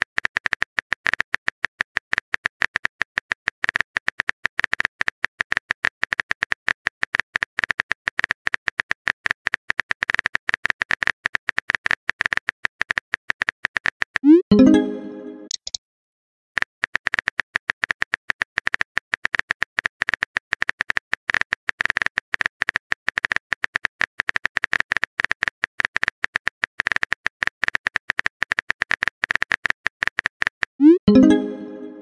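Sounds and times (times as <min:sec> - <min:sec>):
message sent chime: 0:14.3 - 0:15.6, 0:30.8 - 0:32.0
phone keyboard typing clicks: 0:15.5 - 0:15.8.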